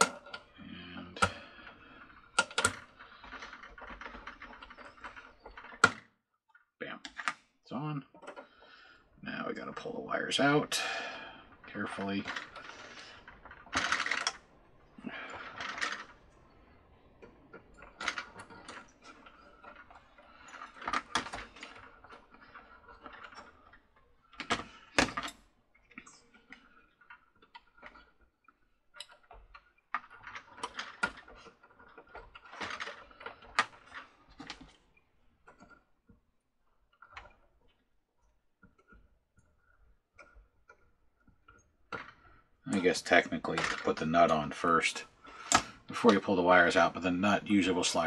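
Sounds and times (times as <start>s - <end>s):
plastic parts clicking and rustling: 0.0s - 48.0s.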